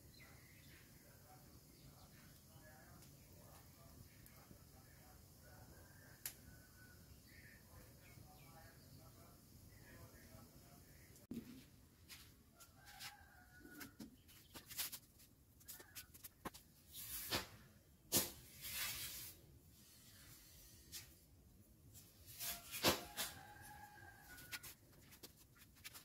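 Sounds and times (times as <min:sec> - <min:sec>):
wood fire crackling and popping: 0:06.2 - 0:06.4
dry corn husks rustling: 0:14.3 - 0:17.3.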